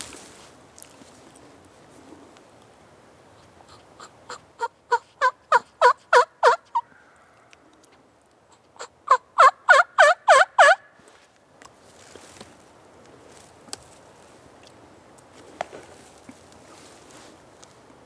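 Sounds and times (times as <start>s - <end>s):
turkey yelping: 3.6s - 7.4s, 8.5s - 10.9s.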